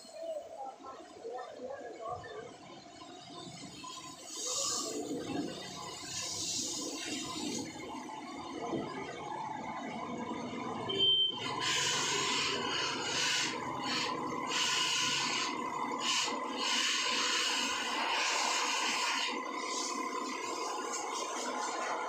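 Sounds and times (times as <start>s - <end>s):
water spraying from a hose: 4.2s - 5.2s, 5.8s - 7.7s, 11.5s - 22.0s
brief high tone: 10.9s - 11.4s.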